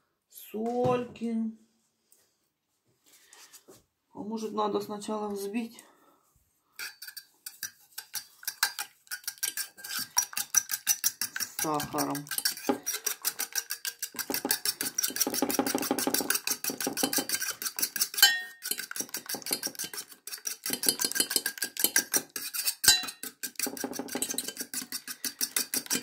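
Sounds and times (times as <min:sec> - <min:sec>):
fork whisking egg in bowl: 0:06.8 - 0:26.0.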